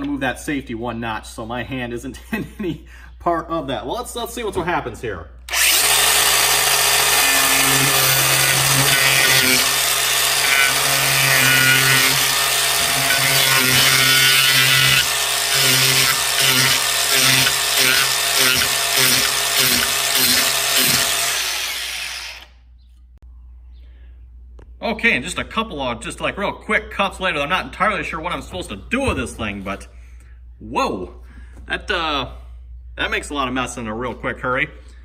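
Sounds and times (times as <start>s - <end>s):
angle grinder cutting wood: 5.5s - 22.6s.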